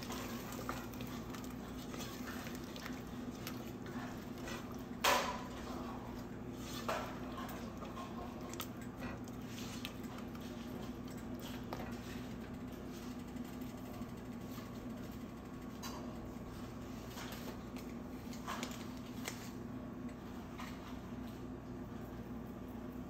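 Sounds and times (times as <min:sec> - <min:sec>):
spatula stirring thick gravy: 0:00.0 - 0:12.4.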